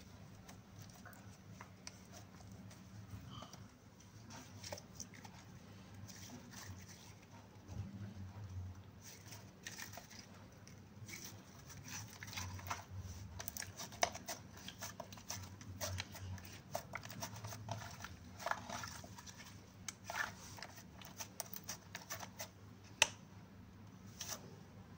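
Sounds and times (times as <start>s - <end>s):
hands squishing sticky slime: 8.9s - 23.2s.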